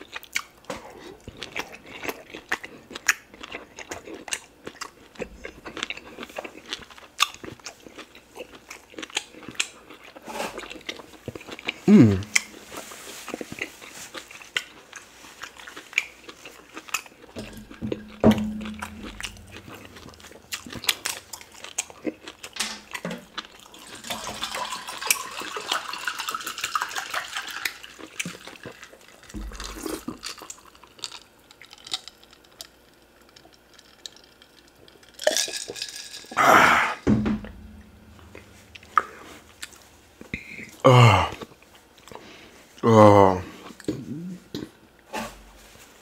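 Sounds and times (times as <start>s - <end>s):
wet chewing and mouth clicks: 0.0s - 12.6s, 13.3s - 36.0s
low hum: 17.4s - 20.7s, 37.1s - 40.1s.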